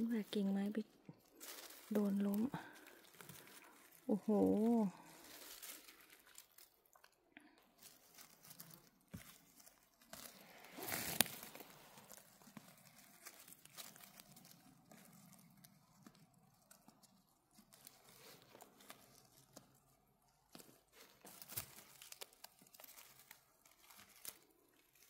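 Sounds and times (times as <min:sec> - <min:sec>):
small crackles: 0:00.0 - 0:25.0
footsteps crunching in undergrowth: 0:01.2 - 0:06.7, 0:07.8 - 0:15.5.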